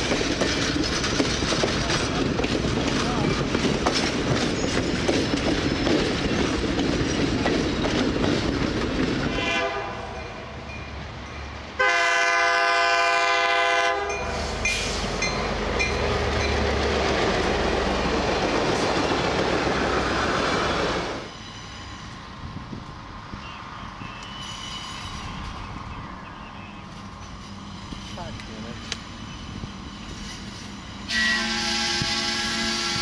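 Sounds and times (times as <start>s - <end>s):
train wheel clatter: 0.0s - 9.5s, 26.9s - 33.0s
locomotive air horn blast: 9.3s - 10.2s, 11.8s - 15.1s, 31.1s - 33.0s.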